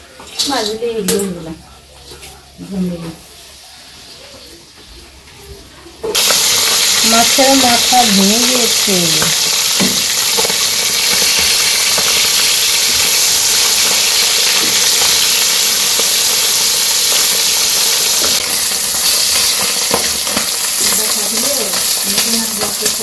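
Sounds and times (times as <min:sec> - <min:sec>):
fish sizzling in hot oil: 0:06.1 - 0:23.0.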